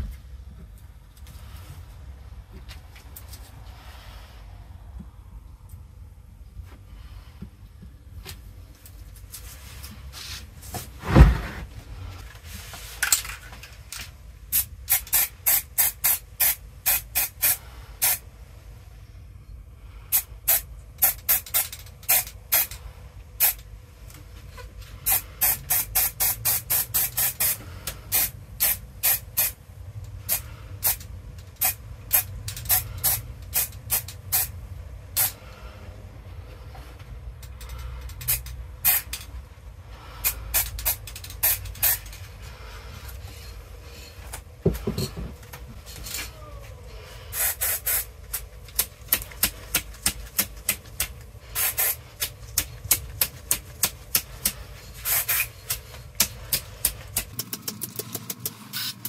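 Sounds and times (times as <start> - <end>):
heavy thump: 10.8 - 11.7
spray paint can hissing bursts: 14.5 - 18.2, 20.1 - 22.8, 23.4 - 23.6, 25.0 - 29.6, 30.2 - 34.5, 35.1 - 35.4, 38.3 - 39.2, 40.2 - 42.2, 47.3 - 48.9, 51.5 - 56.6.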